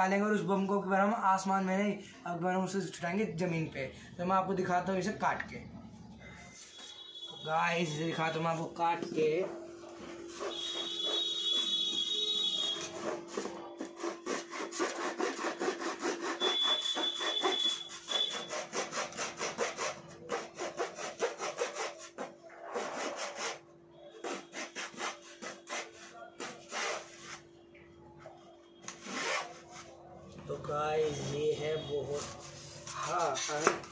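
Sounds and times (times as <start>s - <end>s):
blade sawing through cardboard: 10.2s - 27.4s.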